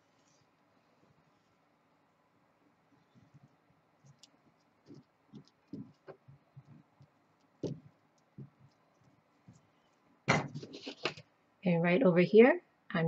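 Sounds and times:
fingers tapping and rubbing wire: 3.0 - 11.2.

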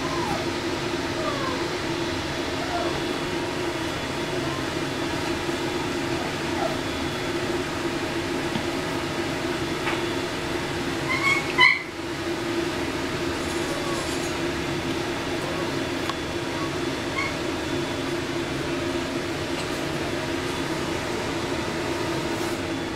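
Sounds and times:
puppy yelping: 0.0 - 4.9, 5.7 - 6.9, 11.0 - 12.0, 13.4 - 14.4, 16.4 - 17.5
puppy whining: 0.0 - 7.5, 10.9 - 12.1, 13.2 - 14.5, 15.3 - 18.8
steady low hum: 0.0 - 22.9.

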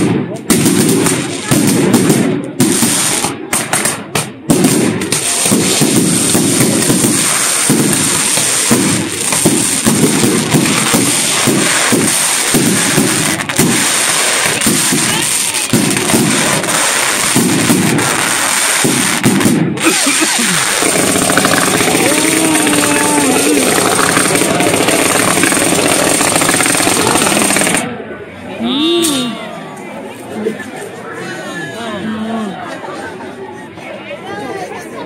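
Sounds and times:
fireworks crackling and popping: 0.0 - 27.9
fireworks sharp bangs: 0.0 - 27.9.

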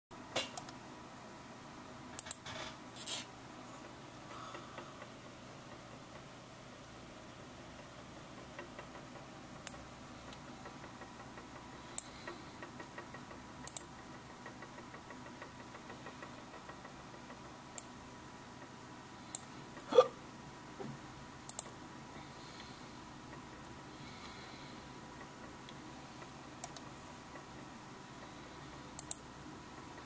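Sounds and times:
scroll wheel ticking: 7.6 - 19.9, 22.5 - 30.0.

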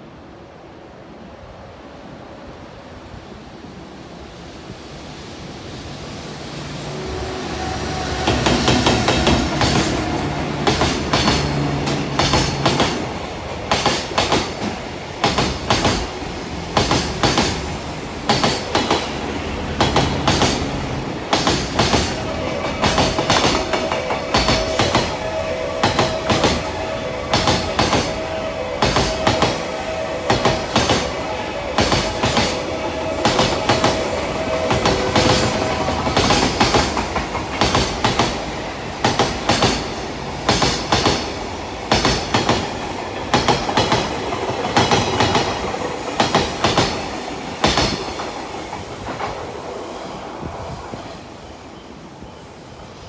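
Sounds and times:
train wheels clattering over rail joints: 33.2 - 41.3, 41.9 - 44.1.

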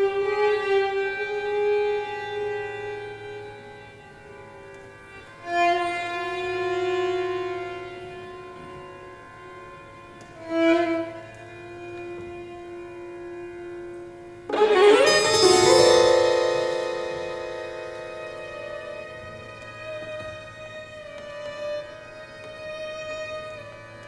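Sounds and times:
violins holding long notes: 14.5 - 21.3
string ensemble playing: 14.5 - 21.6.

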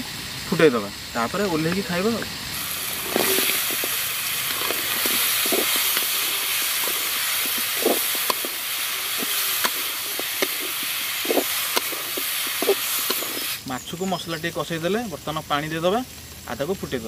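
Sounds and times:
fish sizzling in a pan: 0.0 - 17.0
metal spatula scraping pan: 2.8 - 13.5.

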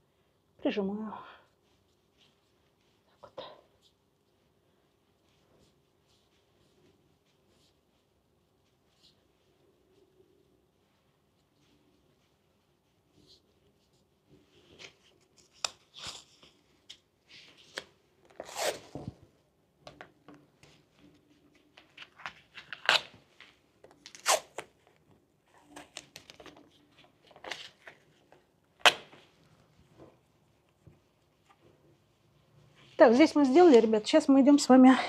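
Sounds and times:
tape rustling: 10.9 - 19.2, 19.8 - 31.7
tape tearing: 17.7 - 19.0, 22.6 - 23.2, 24.0 - 24.7.

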